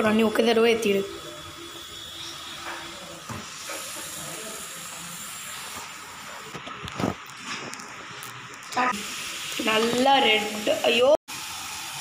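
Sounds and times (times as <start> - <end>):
chicken sizzling in a pan: 1.2 - 6.5, 8.7 - 12.0.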